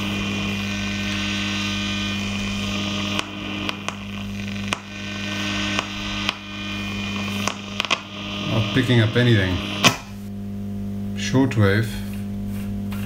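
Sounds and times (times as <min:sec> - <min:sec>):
radio crackles: 0:00.0 - 0:10.3
radio hiss: 0:00.0 - 0:10.3
radio mains hum: 0:00.0 - 0:12.3.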